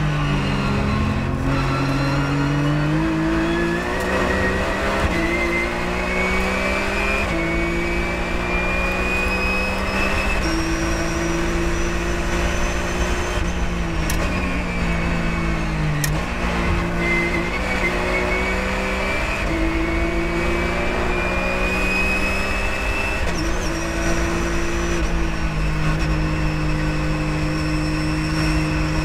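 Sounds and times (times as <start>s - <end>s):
high whine: 0.0s - 6.0s
race car engine accelerating: 0.0s - 29.0s.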